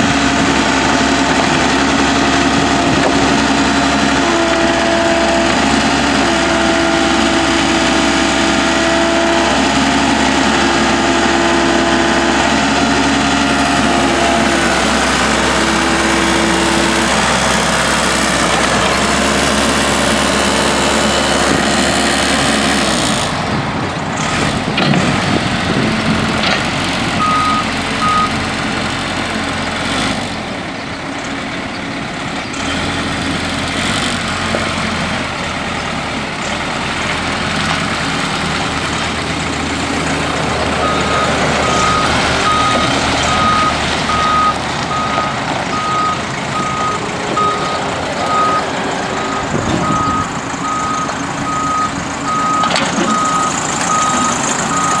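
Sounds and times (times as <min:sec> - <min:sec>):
diesel engine running: 0:00.0 - 0:55.0
reverse alarm beeping: 0:27.2 - 0:28.3.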